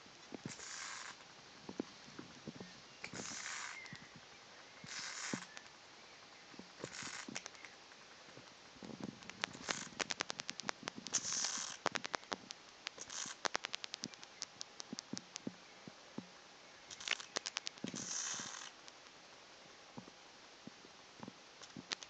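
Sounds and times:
bat hissing: 0.5s - 1.2s, 3.1s - 4.0s, 4.8s - 5.6s, 6.8s - 7.6s, 9.4s - 14.6s, 16.9s - 18.8s
bat clicking: 9.2s - 15.5s, 16.9s - 19.0s.

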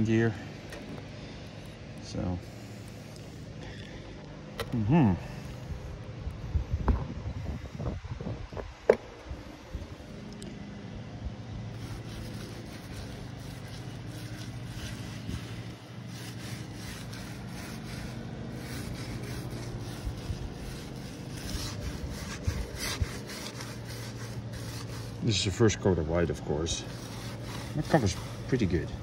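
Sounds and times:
low hum: 0.0s - 29.0s
paintbrush brushing on wood: 11.7s - 29.0s.

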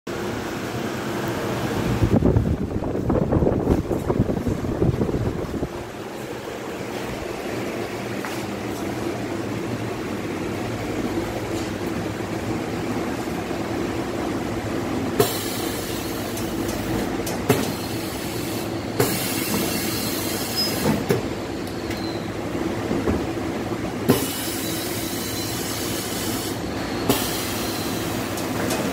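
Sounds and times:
hiss: 17.5s - 21.0s, 24.1s - 28.4s.

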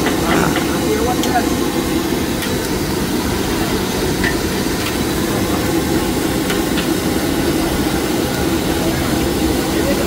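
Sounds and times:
gas burner roaring: 0.0s - 10.0s.

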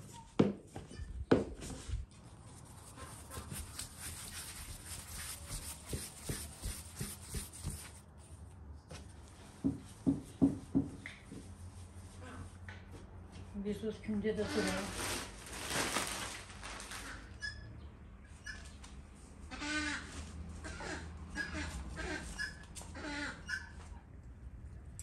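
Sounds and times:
hands scuffing dough on board: 0.1s - 8.1s.

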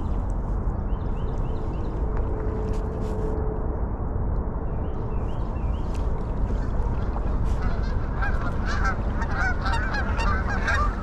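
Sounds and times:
steady low rumble: 0.0s - 11.0s
geese honking: 7.0s - 11.0s.

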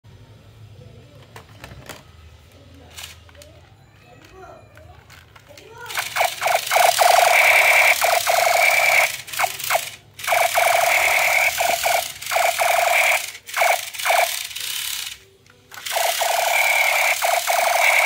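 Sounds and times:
toy gun electronic firing bursts: 5.9s - 18.0s.

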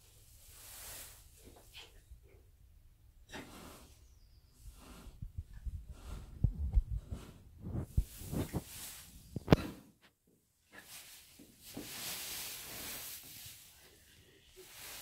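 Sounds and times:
pony breathing hard and snorting: 3.3s - 4.0s, 4.6s - 8.9s
dull low thumps: 5.1s - 8.6s
straw rustling: 10.8s - 15.0s.

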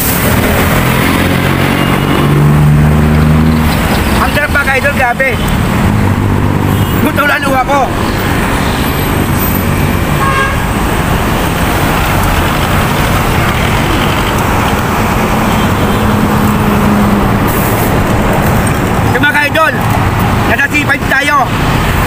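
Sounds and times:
road traffic passing: 0.0s - 22.0s.

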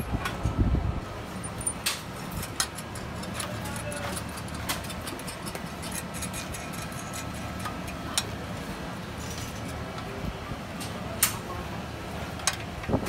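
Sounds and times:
steady low hum: 0.0s - 13.0s
metal clicks and clinks: 1.4s - 8.3s.

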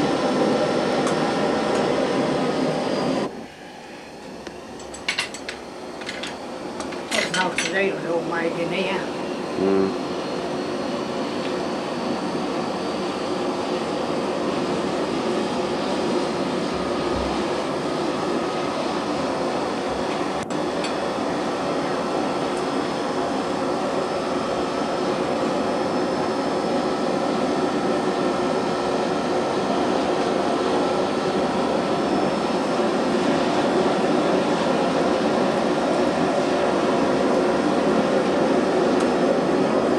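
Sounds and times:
forge blower blasting air: 0.0s - 39.9s.

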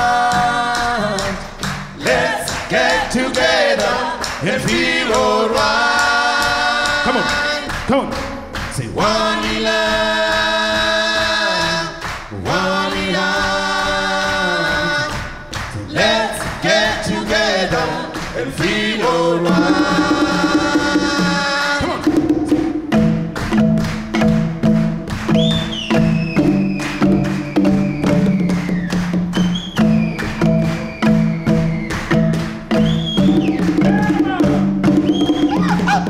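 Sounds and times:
choir singing unaccompanied: 2.0s - 7.8s, 9.0s - 21.9s
low marimba notes: 21.8s - 28.4s, 29.1s - 36.0s.

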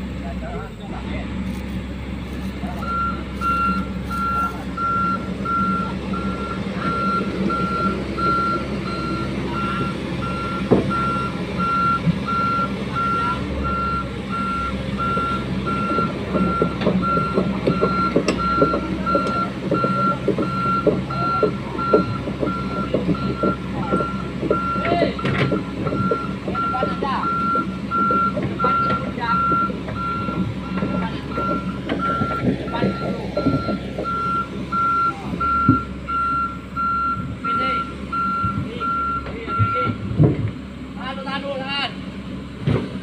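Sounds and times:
diesel engine humming: 0.0s - 43.0s
excavator alarm beeping: 2.8s - 40.1s.

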